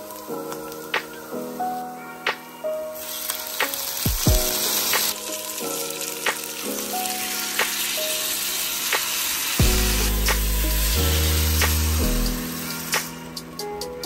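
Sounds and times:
light background music: 0.0 - 14.0
oil sizzling in a pan: 2.9 - 13.6
raw rice poured into pan: 3.0 - 13.2.

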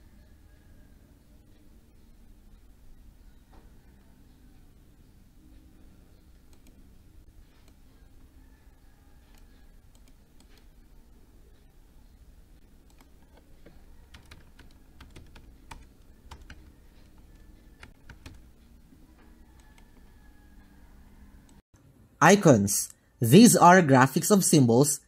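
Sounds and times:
low steady hum: 0.0 - 19.5
computer keyboard keystrokes: 12.9 - 18.4.

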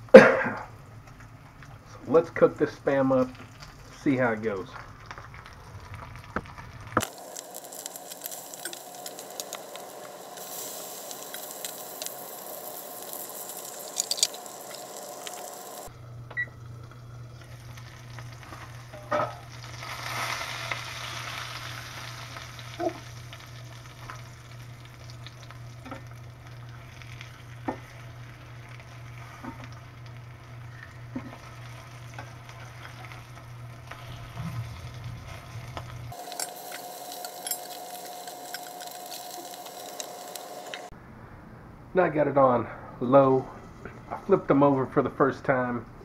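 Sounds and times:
meat sizzling in skillet: 4.8 - 15.9, 17.2 - 40.9.

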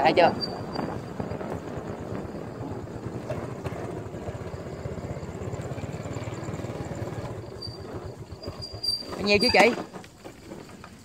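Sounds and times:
small engine running: 1.4 - 9.7.

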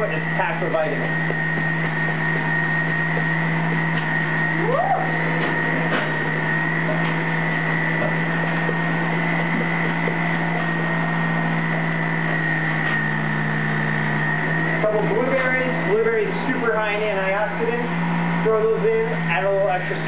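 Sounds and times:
electric juicer motor humming: 0.0 - 20.0.

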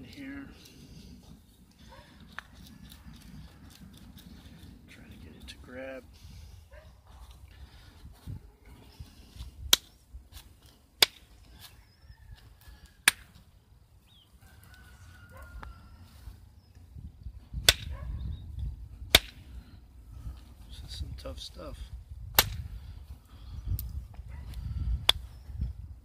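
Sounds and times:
sharp clicking strikes on flint: 9.7 - 11.3, 13.0 - 13.4, 17.6 - 17.9, 19.1 - 19.5, 22.3 - 22.7, 25.0 - 25.3.

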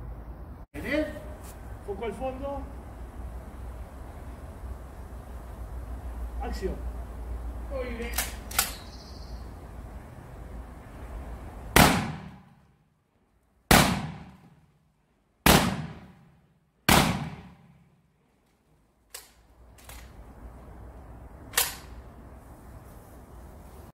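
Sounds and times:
loud crack: 11.7 - 12.6, 13.7 - 14.6, 15.4 - 16.3, 16.9 - 17.8
shotgun blasts: 11.7 - 12.6, 13.7 - 14.6, 15.4 - 16.3, 16.9 - 17.8.

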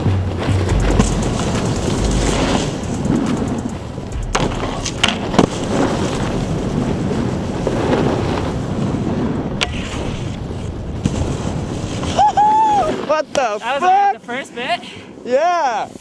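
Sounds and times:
wind buffeting microphone: 0.0 - 13.3
snowboard scraping over snow: 0.3 - 14.6
board knocking on rails: 0.5 - 6.3.

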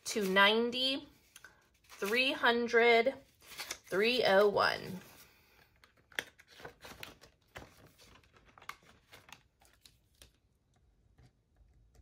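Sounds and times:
paper banknotes rustling: 1.2 - 2.4, 3.2 - 10.4.

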